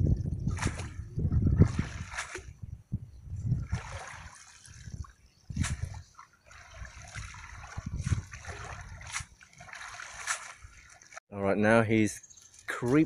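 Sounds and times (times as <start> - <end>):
water sloshing and trickling: 0.0 - 11.2
water splash: 0.5 - 2.6, 3.6 - 11.2.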